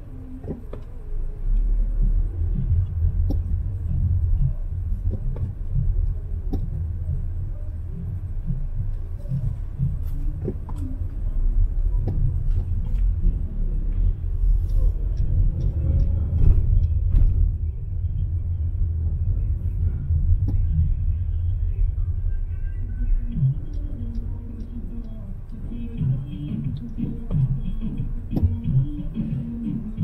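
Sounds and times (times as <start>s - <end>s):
car driving slowly: 0.0s - 30.0s
faint clicks: 23.3s - 29.3s.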